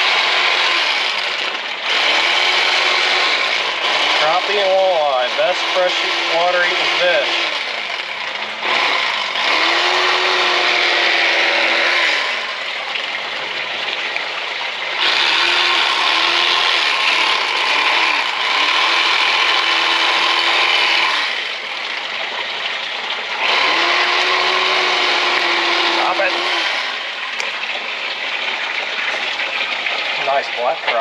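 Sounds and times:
electric knife motor whining: 0.0s - 13.6s, 14.9s - 21.8s, 23.3s - 27.1s
blades rasping through fish: 0.0s - 31.0s.

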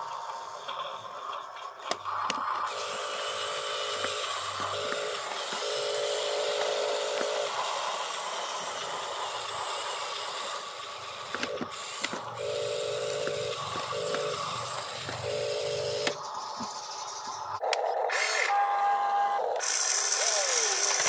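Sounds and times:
toy truck electric motor whining: 0.0s - 21.0s.

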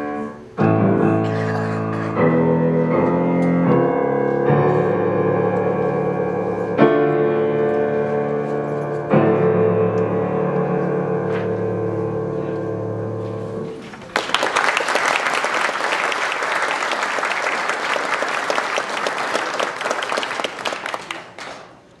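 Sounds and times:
audience applause: 14.0s - 21.8s.

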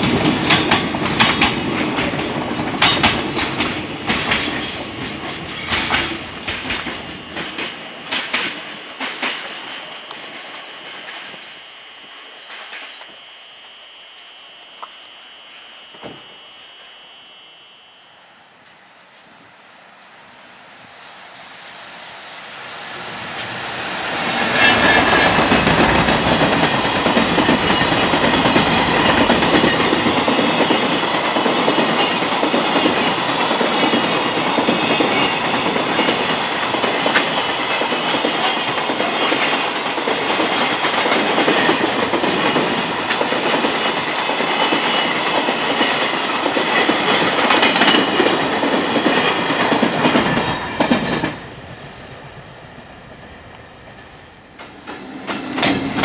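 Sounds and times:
freight train wheels clattering: 0.0s - 11.7s, 23.2s - 51.6s, 54.0s - 56.0s.

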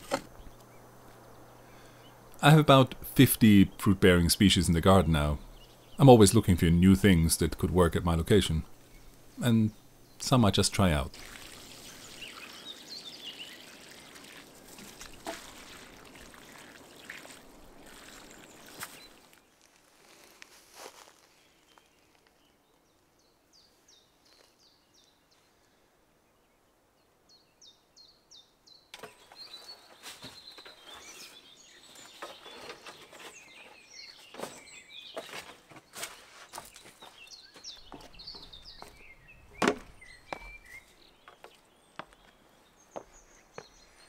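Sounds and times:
knocks and scrapes of work: 0.0s - 0.4s, 32.0s - 37.2s
small birds chirping: 0.0s - 44.0s.

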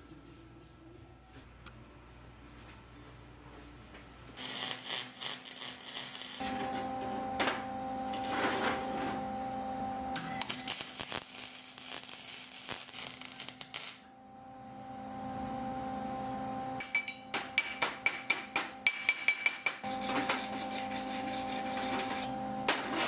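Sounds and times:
welding arc crackling: 4.4s - 6.8s, 10.2s - 14.1s
chipping hammer tapping metal: 16.8s - 20.3s.

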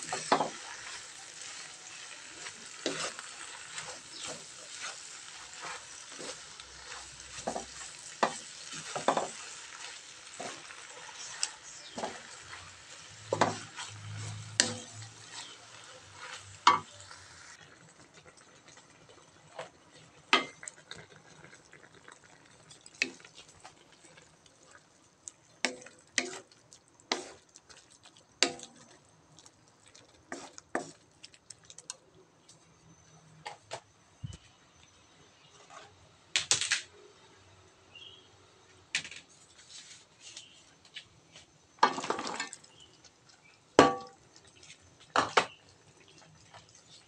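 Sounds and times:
wooden spatula scraping a wok: 0.0s - 17.6s, 27.1s - 27.4s, 30.3s - 31.1s
food sizzling: 0.0s - 32.1s, 41.8s - 47.0s.

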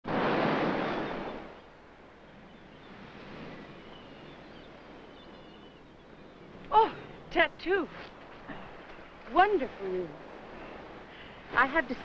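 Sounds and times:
ocean surf washing onto beach: 0.0s - 5.5s
faint bird chirps: 0.8s - 7.4s.

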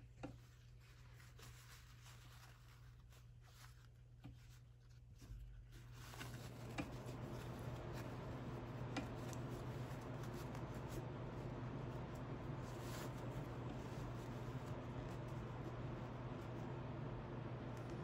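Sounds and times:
fabric and thread rustling: 0.0s - 18.0s
steady low hum: 0.0s - 18.0s.

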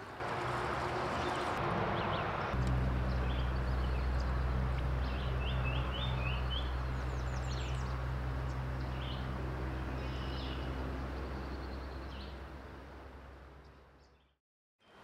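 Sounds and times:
stream water rushing: 0.0s - 3.0s
birds chirping: 0.4s - 12.4s
steady low hum: 2.6s - 13.4s.

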